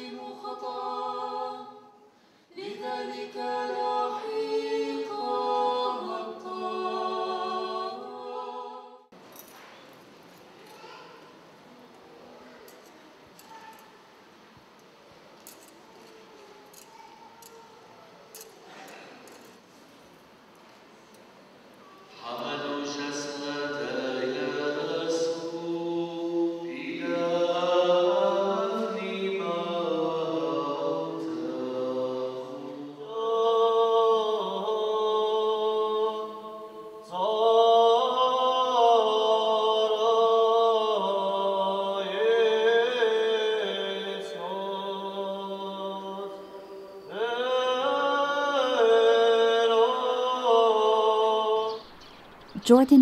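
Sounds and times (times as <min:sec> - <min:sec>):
lower voices chanting: 0:00.0 - 0:09.1, 0:22.1 - 0:53.0.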